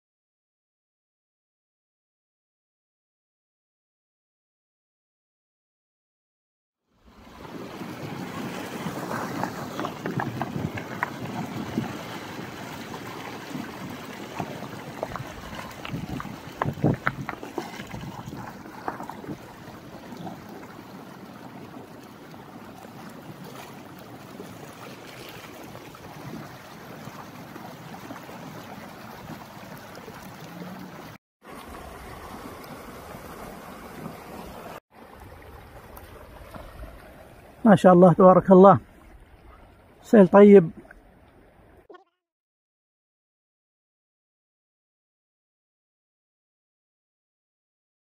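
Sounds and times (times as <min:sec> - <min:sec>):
floodwater rushing: 0:07.0 - 0:41.9.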